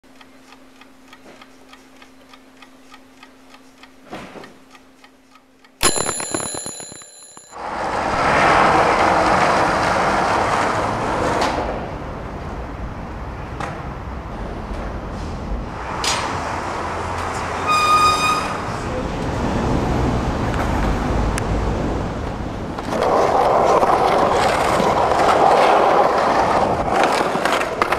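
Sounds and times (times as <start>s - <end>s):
clock ticking: 0.0s - 7.6s
alarm clock ringing: 5.8s - 7.6s
loud rushing outdoor noise: 7.6s - 17.6s, 18.6s - 27.8s.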